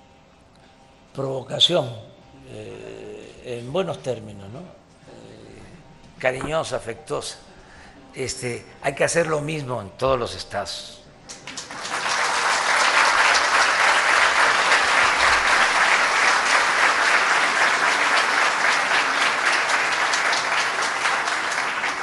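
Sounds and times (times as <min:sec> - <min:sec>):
audience applauding: 0:11.3 - 0:22.0.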